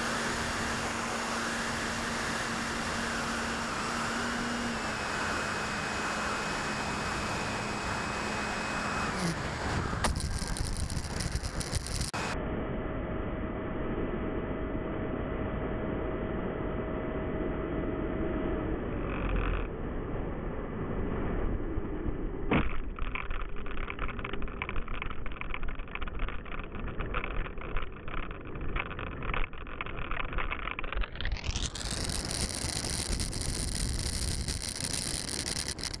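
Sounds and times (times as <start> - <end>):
ducted fan whine: 0.0 - 36.0
landing gear rattling on asphalt: 9.2 - 12.2, 22.5 - 36.0.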